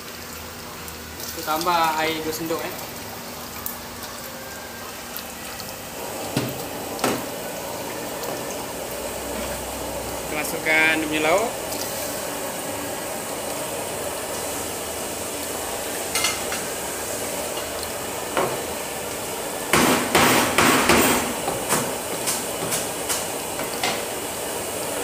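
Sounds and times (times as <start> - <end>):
sharp knocks and clatters: 19.8 - 23.2.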